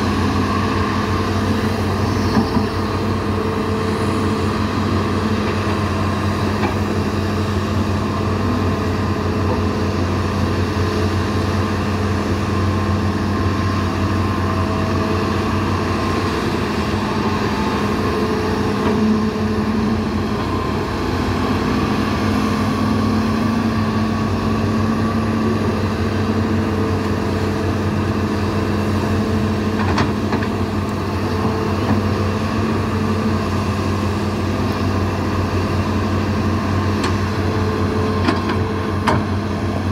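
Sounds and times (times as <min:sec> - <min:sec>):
excavator engines running: 0:00.0 - 0:39.9
rising and falling hydraulic whine: 0:12.6 - 0:27.9.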